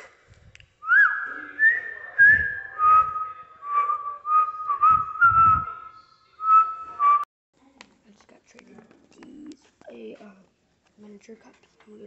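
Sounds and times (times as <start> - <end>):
boy whistling a tune: 0.8 - 5.8, 6.4 - 7.2.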